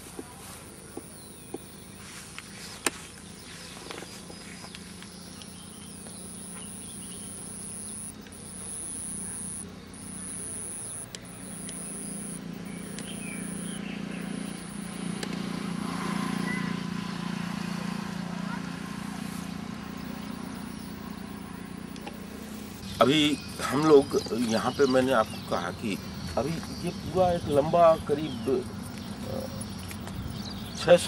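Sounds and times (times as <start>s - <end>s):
low engine hum: 0.0s - 24.4s
sharp clicks: 0.7s - 2.0s, 4.7s - 15.5s, 19.8s - 22.9s
insect shrilling: 5.1s - 15.2s, 19.9s - 23.4s.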